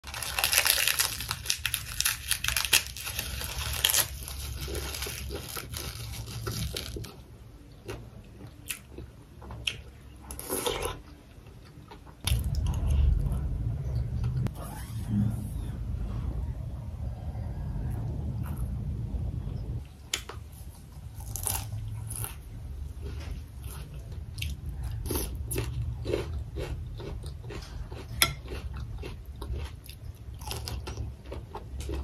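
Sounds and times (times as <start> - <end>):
crisp crunching and chewing: 0.0 - 7.2, 21.2 - 32.0
low rumble: 12.2 - 20.0.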